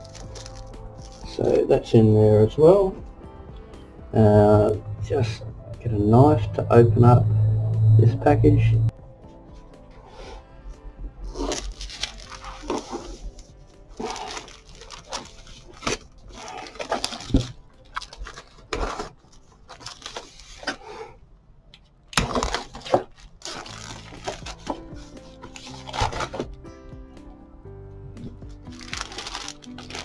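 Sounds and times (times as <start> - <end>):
plastic packaging crinkling and tearing: 0.0 - 1.6, 11.3 - 20.9, 22.1 - 26.6, 28.7 - 30.0
soft background music: 0.0 - 21.0, 21.6 - 30.0.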